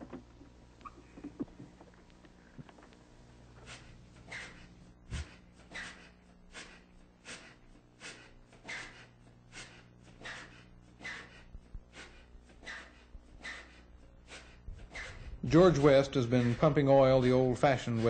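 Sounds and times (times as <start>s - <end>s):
wooden pumping rig creaking: 0.0s - 3.0s, 14.8s - 17.2s
steady low hum: 0.0s - 18.0s
rhythmic short squeaks: 3.6s - 18.0s.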